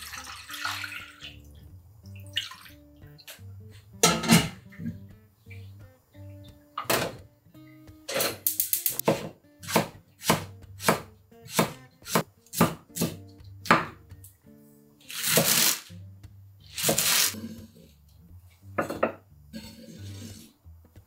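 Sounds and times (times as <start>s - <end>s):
knife chopping on wooden board: 9.0s - 14.0s
knife scraping board: 16.8s - 17.8s, 19.6s - 20.5s.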